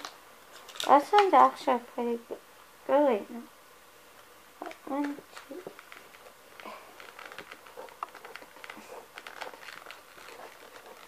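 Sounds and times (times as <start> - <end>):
cardboard packaging rustling: 0.0 - 1.4, 4.6 - 11.0.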